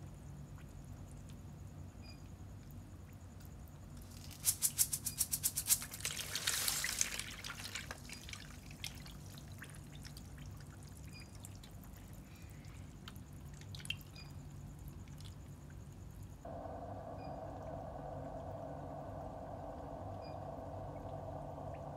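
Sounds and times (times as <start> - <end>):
fish splashing at water surface: 4.2 - 11.7
water drips and plops: 6.0 - 15.4.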